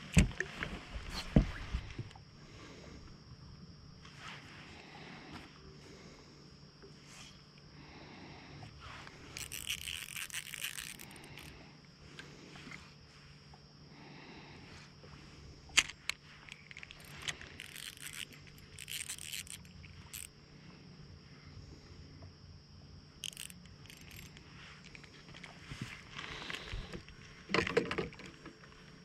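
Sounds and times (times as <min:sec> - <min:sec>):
faint steady hum: 0:00.0 - 0:29.0
fishing reel handling clicks: 0:09.3 - 0:11.5, 0:15.8 - 0:20.3, 0:23.2 - 0:25.5.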